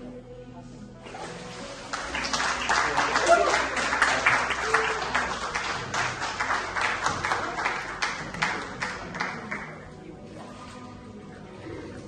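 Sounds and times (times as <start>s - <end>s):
congregation clapping: 1.8s - 9.9s.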